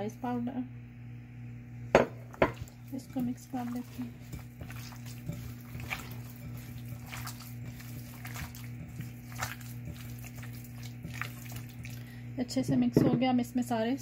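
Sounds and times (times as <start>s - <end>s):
steady low hum: 0.0s - 14.0s
hands squelching wet chicken: 2.6s - 12.2s.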